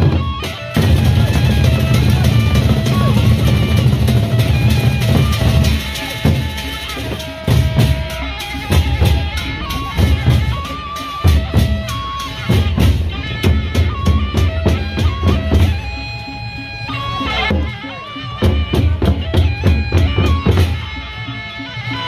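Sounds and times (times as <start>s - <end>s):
barrel drums beaten: 0.0s - 16.0s
held melody line: 0.0s - 22.0s.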